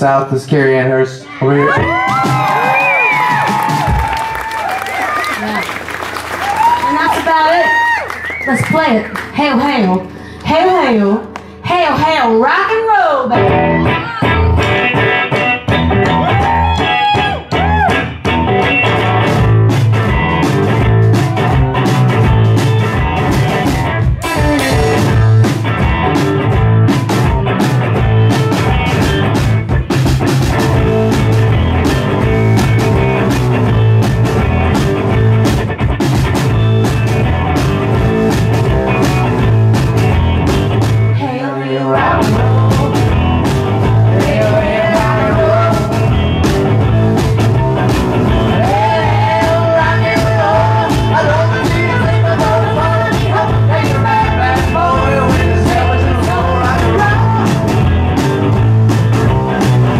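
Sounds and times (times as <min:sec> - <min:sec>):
electric guitar: 0:01.1 - 0:59.9
drum beat: 0:01.6 - 0:09.9, 0:14.2 - 0:41.2, 0:42.1 - 0:59.9
man singing: 0:41.3 - 0:46.2, 0:48.5 - 0:57.8.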